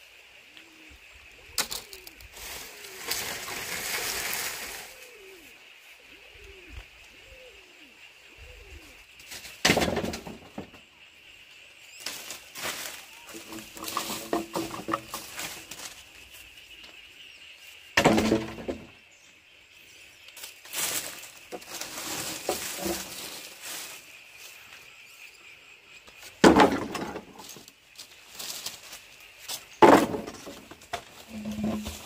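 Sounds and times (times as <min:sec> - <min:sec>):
bamboo poles clattering: 0:01.6 - 0:05.0, 0:09.2 - 0:10.9, 0:12.0 - 0:17.0, 0:18.0 - 0:19.0, 0:20.4 - 0:24.1, 0:26.1 - 0:32.0
dry thatch rustling: 0:01.6 - 0:05.5, 0:12.0 - 0:17.0, 0:20.2 - 0:24.9, 0:26.2 - 0:32.0.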